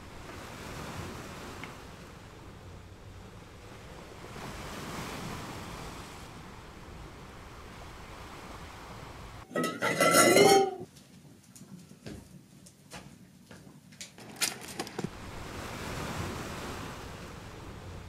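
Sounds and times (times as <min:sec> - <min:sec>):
sea surf: 0:00.0 - 0:10.8, 0:14.7 - 0:18.0
wind: 0:00.0 - 0:18.0.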